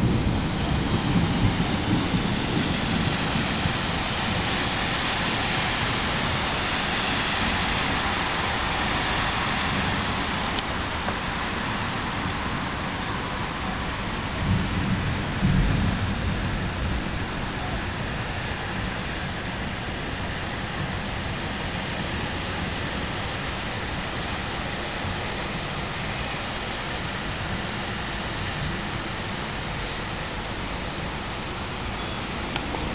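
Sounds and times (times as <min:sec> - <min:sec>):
heavy rain downpour: 0:00.0 - 0:32.9.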